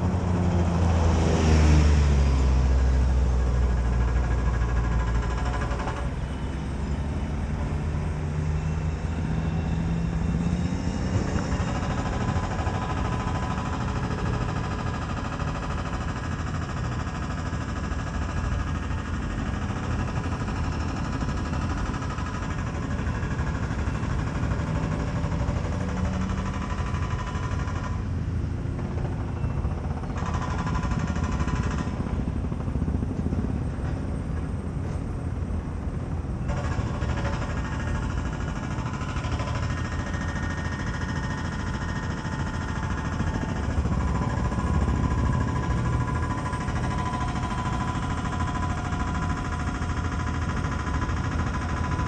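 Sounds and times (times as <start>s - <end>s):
outdoor background noise: 0.0s - 52.0s.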